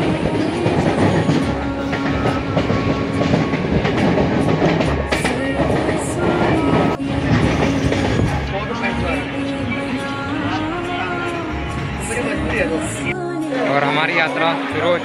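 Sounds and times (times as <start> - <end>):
train wheels rumbling on rails: 0.0 - 9.9.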